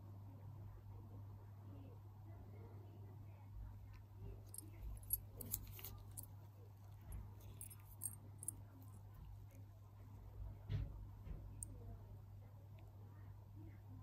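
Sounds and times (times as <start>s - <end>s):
small metallic clicks and ticks: 4.5s - 6.3s, 7.0s - 8.6s.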